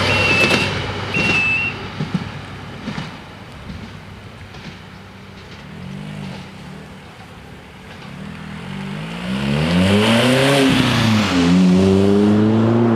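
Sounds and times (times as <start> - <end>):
car engine accelerating past: 8.1 - 12.9.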